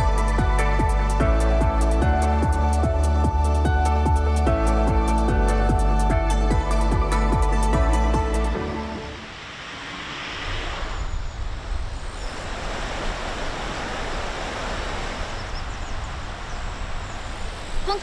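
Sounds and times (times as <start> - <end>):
background music: 0.0 - 9.4.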